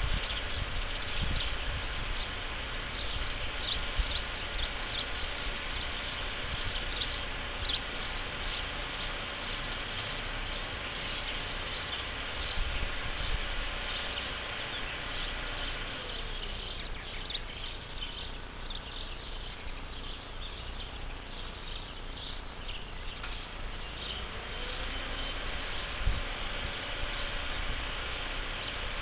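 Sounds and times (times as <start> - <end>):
insects chirping: 0.0 - 29.0
steady low rumble: 0.0 - 29.0.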